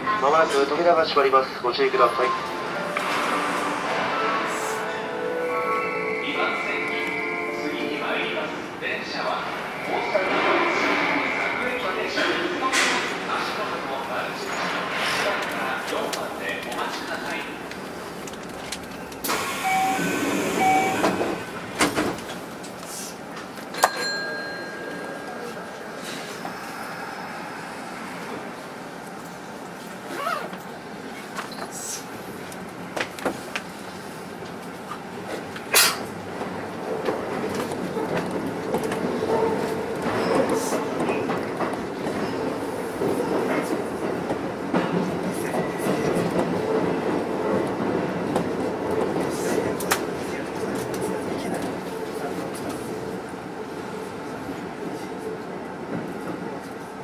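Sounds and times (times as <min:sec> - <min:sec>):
train wheels rumbling on rail: 0:09.4 - 0:23.9, 0:25.5 - 0:57.0
train clunk: 0:12.2 - 0:13.4, 0:14.4 - 0:24.6
steady high tone: 0:19.5 - 0:21.1
short beeps: 0:19.6 - 0:21.1.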